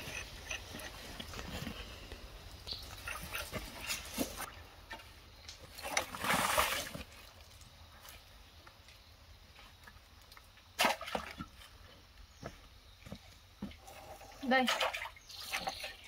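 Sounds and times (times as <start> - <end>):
water splashing: 5.7 - 7.4.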